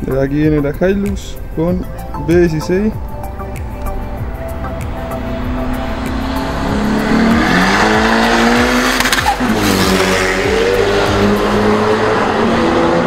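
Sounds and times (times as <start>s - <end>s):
engine revving accelerating: 4.5s - 13.0s.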